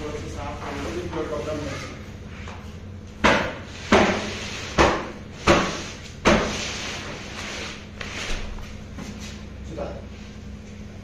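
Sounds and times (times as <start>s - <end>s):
steady low hum: 0.0s - 11.0s
sharp knocks on hard object: 3.2s - 6.5s.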